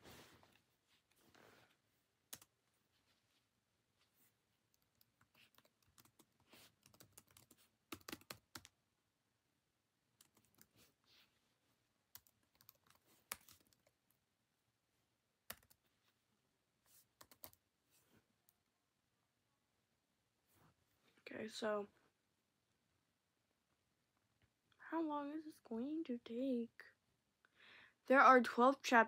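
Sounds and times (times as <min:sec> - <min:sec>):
typing on computer keyboard: 0:04.8 - 0:08.7, 0:12.2 - 0:14.0, 0:15.5 - 0:15.8, 0:17.2 - 0:17.6.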